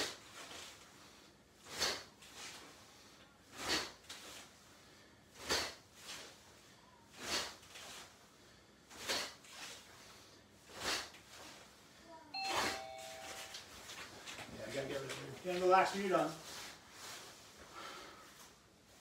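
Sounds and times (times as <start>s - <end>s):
person counting: 12.4s - 13.7s.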